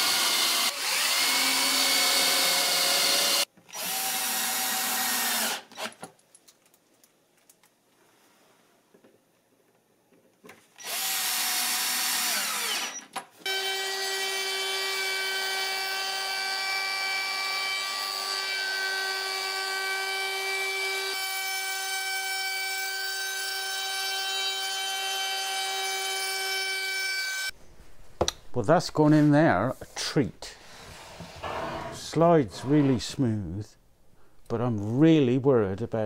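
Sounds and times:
cordless drill driving screw: 0.0s - 6.0s, 10.8s - 14.7s.

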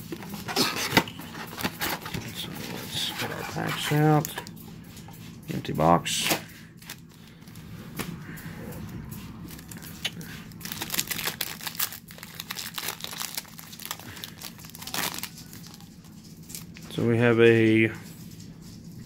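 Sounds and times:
foil wrapper crinkling and tearing: 6.8s - 7.6s, 9.5s - 16.9s.

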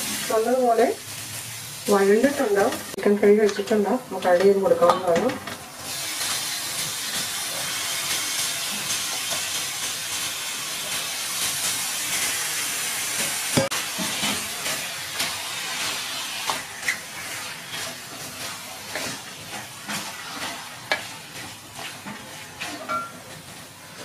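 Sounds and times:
chicken sizzling in a hot pan: 0.0s - 24.0s
wooden spatula scraping a pan: 14.0s - 24.0s.

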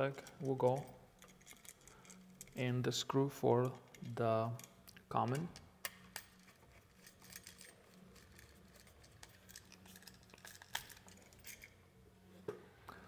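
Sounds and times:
wire rustling: 6.0s - 12.0s.

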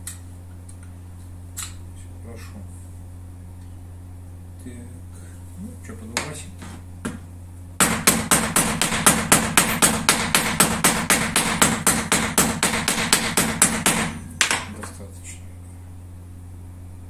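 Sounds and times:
rapid sharp knocks: 7.8s - 14.9s.

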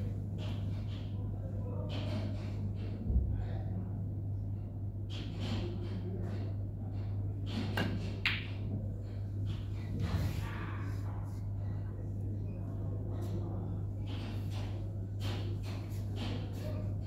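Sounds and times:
low room hum: 0.0s - 17.0s
snooker balls clicking: 7.6s - 8.7s.

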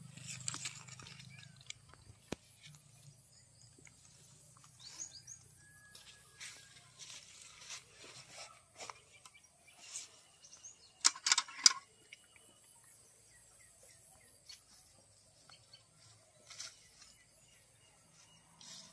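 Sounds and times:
rustling in grass: 5.9s - 10.5s, 14.5s - 18.9s.

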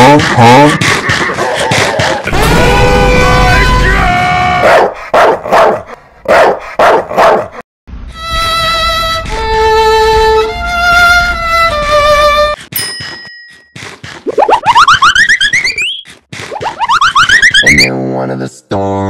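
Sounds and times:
slow mournful violin melody: 8.1s - 12.6s.

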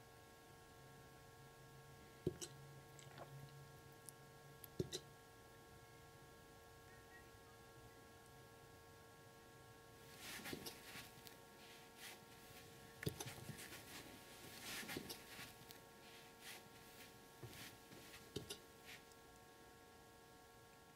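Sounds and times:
electrical hum: 0.0s - 20.9s
faint rustles and clicks: 10.1s - 19.2s.

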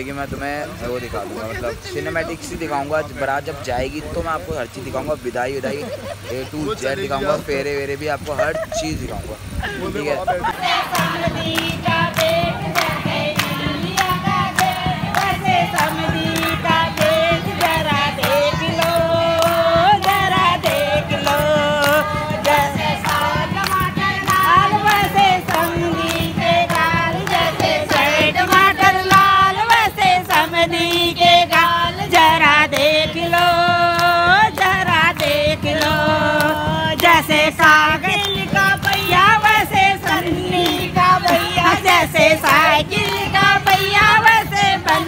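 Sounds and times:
hand-clapping: 10.5s - 45.0s
women singing in chorus: 10.5s - 45.0s.

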